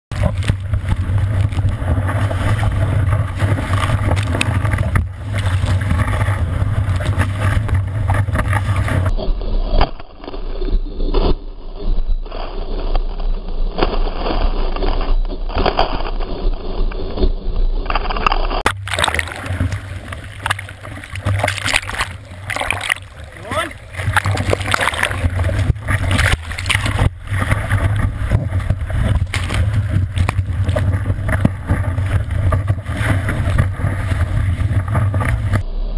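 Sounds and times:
wind and water buffeting camera: 0:00.0 - 0:35.9
water splashes: 0:00.1 - 0:09.2, 0:17.9 - 0:35.9
whitewater rushing: 0:18.7 - 0:35.6.

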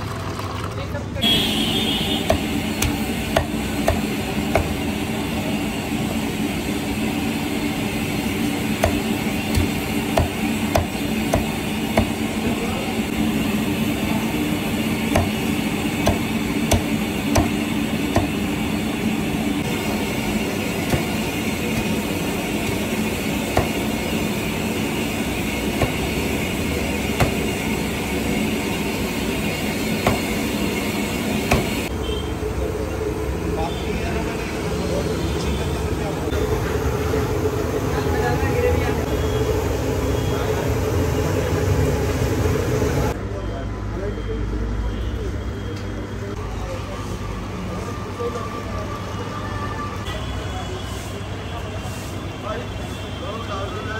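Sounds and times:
cleaver chopping on wooden block: 0:08.8 - 0:12.2, 0:15.1 - 0:15.4, 0:16.0 - 0:18.3.

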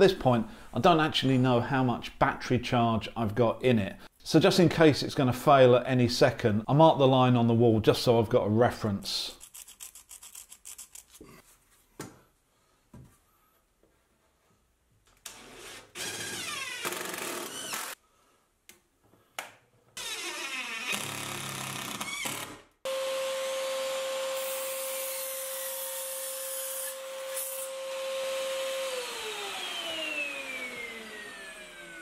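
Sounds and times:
mitre saw whining: 0:15.3 - 0:18.0, 0:20.0 - 0:32.0.

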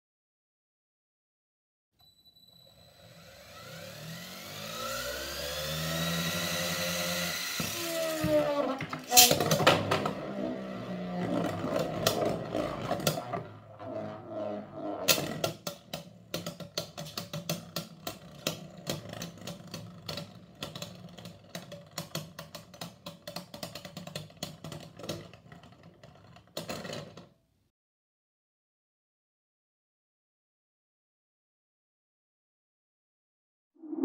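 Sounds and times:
spinning tops whirring: 0:02.7 - 0:11.0.

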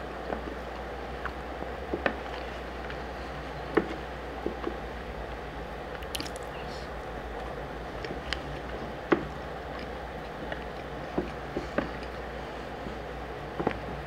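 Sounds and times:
eating clicks and smacks: 0:05.9 - 0:06.6, 0:07.4 - 0:12.2.

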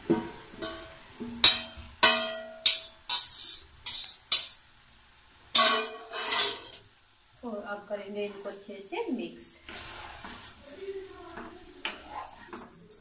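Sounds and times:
spoon clinking in metal bowl: 0:00.6 - 0:04.6, 0:05.6 - 0:06.8, 0:09.7 - 0:13.0.

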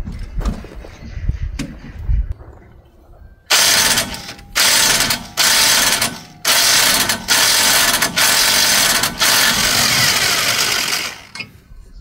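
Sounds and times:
power ratchet running: 0:03.5 - 0:11.4.

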